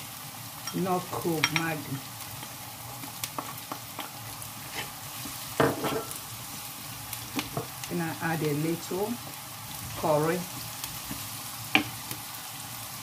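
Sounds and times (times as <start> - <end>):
vegetables sizzling in oil: 0.0 - 13.0
wooden spatula scraping pan: 3.4 - 6.2.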